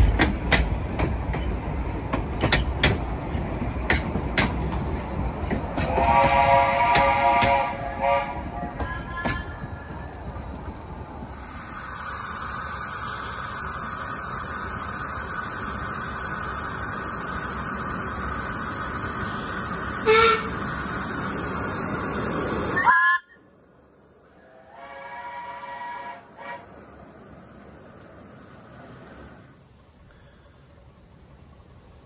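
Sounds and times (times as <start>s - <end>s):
steam locomotive hissing steam: 0.0s - 10.2s, 11.1s - 32.0s
steam whistle toot: 5.8s - 9.5s, 20.0s - 20.6s, 22.8s - 23.4s, 24.4s - 26.7s
rising whistle: 22.6s - 23.5s.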